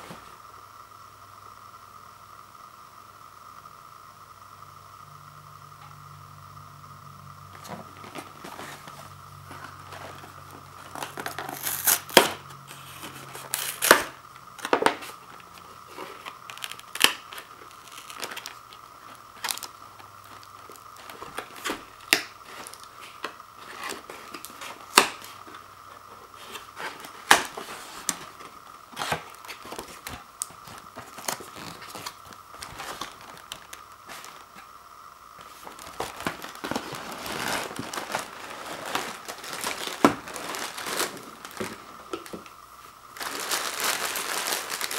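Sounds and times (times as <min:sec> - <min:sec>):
plastic crinkling: 0:07.6 - 0:34.7, 0:35.4 - 0:44.9
cardboard snapping and tearing: 0:10.9 - 0:12.4, 0:13.1 - 0:15.1, 0:16.0 - 0:18.6, 0:26.4 - 0:34.4, 0:35.4 - 0:42.5.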